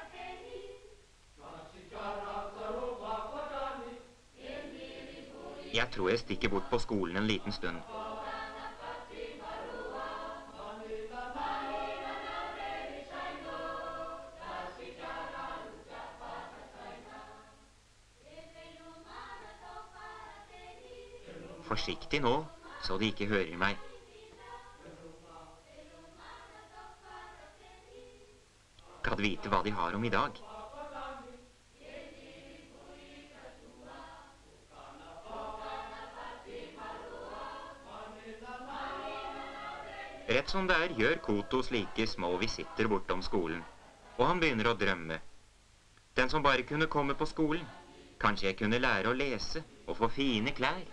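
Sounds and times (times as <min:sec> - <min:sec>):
choir singing: 0:00.0 - 0:45.0, 0:46.6 - 0:50.9.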